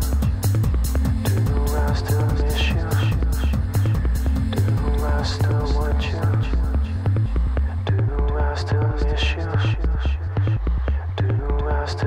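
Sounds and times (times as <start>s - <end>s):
electronic music with deep bass: 0.0s - 12.0s.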